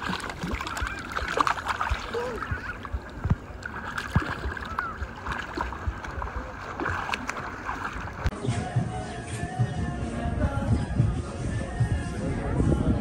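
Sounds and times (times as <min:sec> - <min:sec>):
pool water splashing: 0:00.0 - 0:08.4
faint music: 0:00.0 - 0:13.0.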